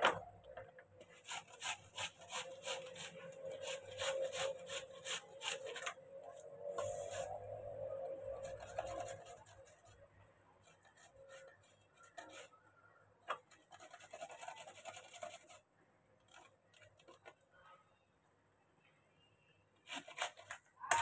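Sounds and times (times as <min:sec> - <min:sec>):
potato scraping on metal grater: 0:01.1 - 0:06.0, 0:08.2 - 0:10.0, 0:13.4 - 0:15.6, 0:19.8 - 0:20.6.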